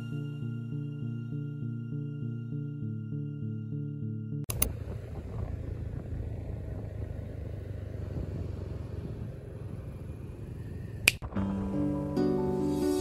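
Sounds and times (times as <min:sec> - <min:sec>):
motorbike engine running: 0:04.5 - 0:11.2
wind rushing over microphone: 0:04.6 - 0:11.2.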